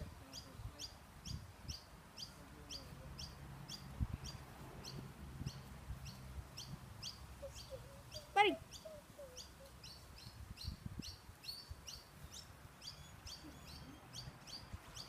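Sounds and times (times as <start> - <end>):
bird chirping: 0.2 - 15.0.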